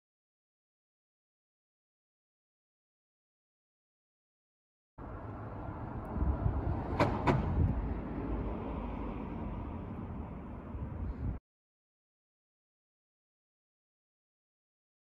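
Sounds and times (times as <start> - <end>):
low outdoor rumble: 5.0 - 11.4.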